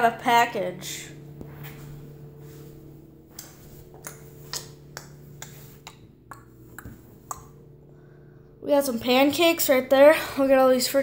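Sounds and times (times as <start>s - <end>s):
low electrical hum: 0.0s - 11.0s
footsteps on hardwood floor: 1.4s - 4.4s.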